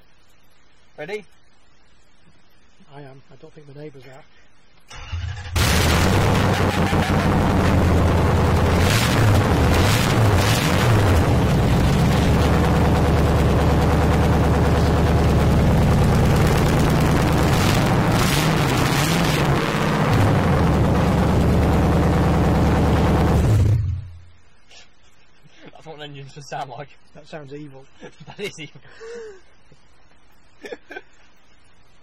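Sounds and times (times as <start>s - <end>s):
loud raw car engine idling and revving: 5.6s - 24.1s.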